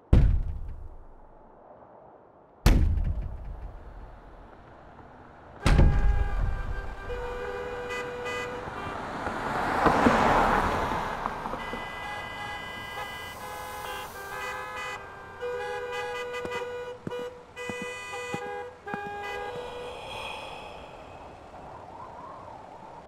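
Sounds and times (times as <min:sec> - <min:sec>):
deep boom: 0:02.6 - 0:04.1
car horns sounding: 0:05.6 - 0:10.6, 0:11.3 - 0:20.1
car passing by: 0:08.5 - 0:15.0, 0:19.3 - 0:23.0.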